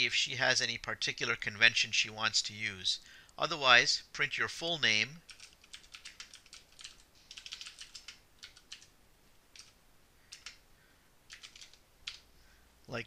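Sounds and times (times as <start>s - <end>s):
faint keyboard typing: 5.2s - 10.6s, 11.2s - 12.3s.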